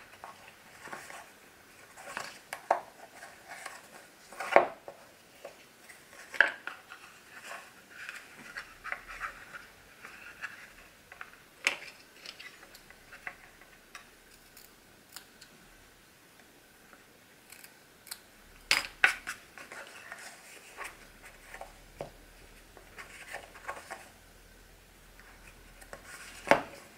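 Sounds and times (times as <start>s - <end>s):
paper rustling: 0.0s - 13.3s.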